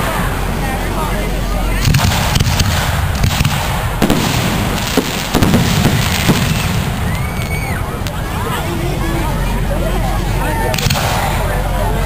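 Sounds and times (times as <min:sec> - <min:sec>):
low ambient rumble: 0:00.0 - 0:12.0
fireworks bangs and pops: 0:01.8 - 0:08.3, 0:10.7 - 0:11.4.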